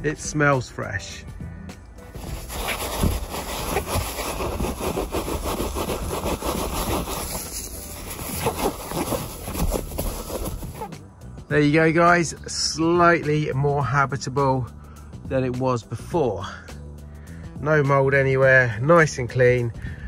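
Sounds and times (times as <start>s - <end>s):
gloved hand rubbing leather: 2.1s - 11.0s.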